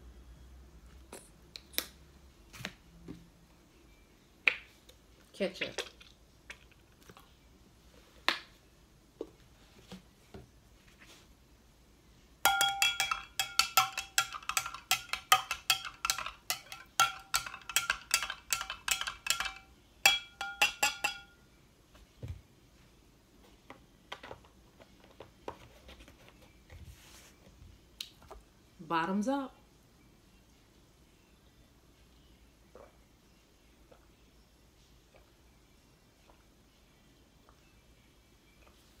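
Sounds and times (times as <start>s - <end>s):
spoon clinking in glass: 12.5s - 21.4s.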